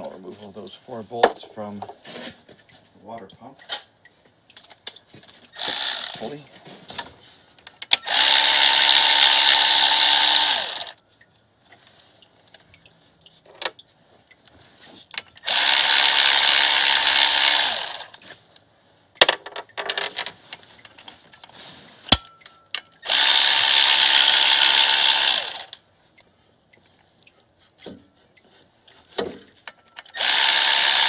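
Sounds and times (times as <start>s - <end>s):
power tool whine: 5.6s - 6.3s, 8.0s - 11.0s, 15.4s - 18.2s, 23.0s - 25.8s, 30.1s - 31.0s
metallic clicks and knocks: 19.2s - 21.5s.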